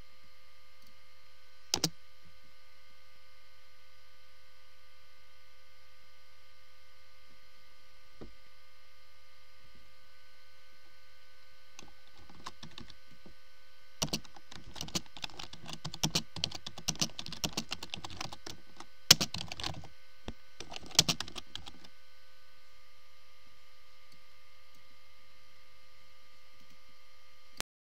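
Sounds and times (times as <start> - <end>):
electrical hum: 0.0 - 27.6
typing on computer keyboard: 11.8 - 13.0, 14.0 - 19.9, 20.6 - 21.9.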